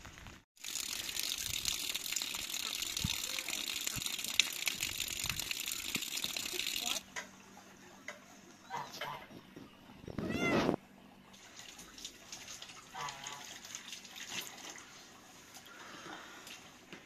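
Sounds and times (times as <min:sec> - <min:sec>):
cat meowing: 0:10.2 - 0:10.8.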